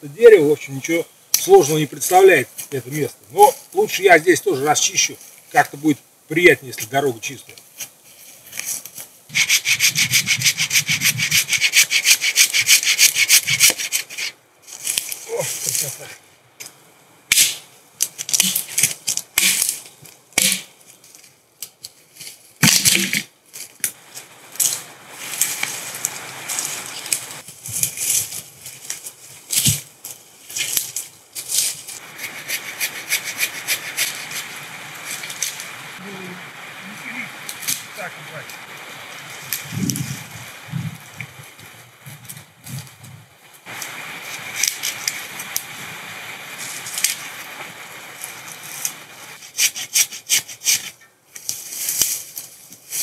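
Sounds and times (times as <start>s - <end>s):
branches scraping and cracking: 7.5s - 36.0s, 36.8s - 53.0s
hand saw cutting wood: 9.3s - 14.3s, 32.2s - 34.5s, 49.4s - 51.0s.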